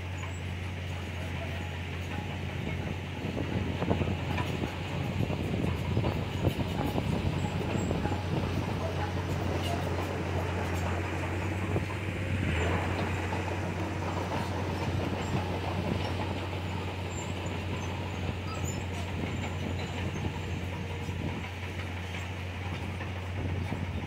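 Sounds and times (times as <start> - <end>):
bulldozer diesel engine drone: 0.0 - 24.0
tracks clattering: 0.0 - 24.0.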